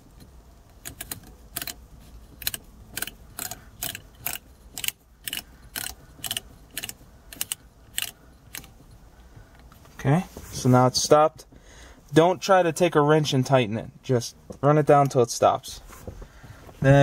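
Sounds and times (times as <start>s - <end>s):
nut spinning on threaded lever clicks: 0.7s - 1.8s.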